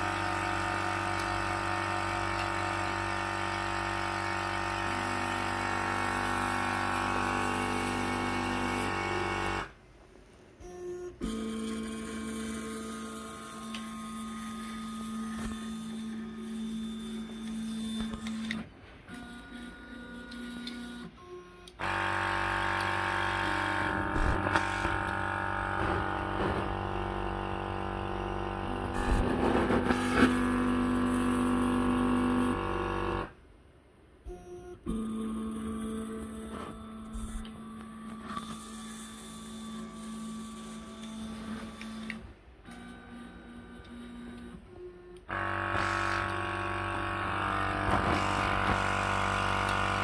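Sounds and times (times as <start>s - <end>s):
steady machine hum: 0.0s - 18.6s, 19.2s - 33.4s, 34.2s - 50.0s
stepper motors whining: 10.6s - 33.3s, 34.3s - 50.0s.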